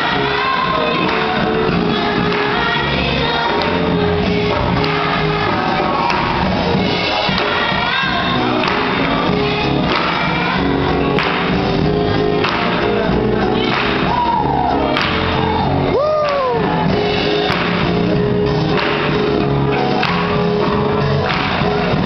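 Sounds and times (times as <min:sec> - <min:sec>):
woman singing gospel lead: 0:00.0 - 0:11.1
choir voices singing: 0:00.0 - 0:18.2
instrumental accompaniment: 0:00.0 - 0:22.0.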